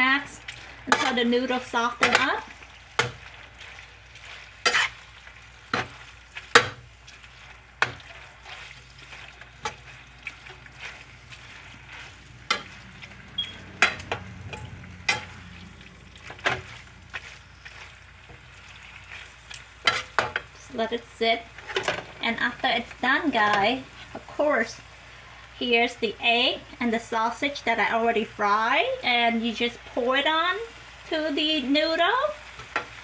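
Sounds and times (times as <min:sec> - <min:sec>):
spatula scraping pan: 0:00.0 - 0:20.5
noodles sizzling in frying pan: 0:00.0 - 0:33.0.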